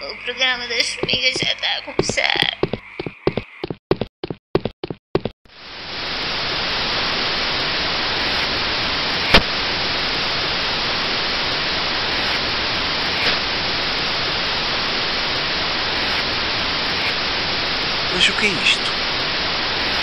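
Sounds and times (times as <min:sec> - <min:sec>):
television static hiss: 0:05.6 - 0:20.0.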